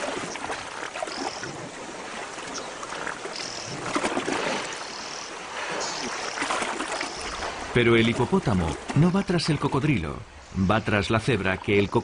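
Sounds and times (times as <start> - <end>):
river water splashing: 0.0 - 12.0.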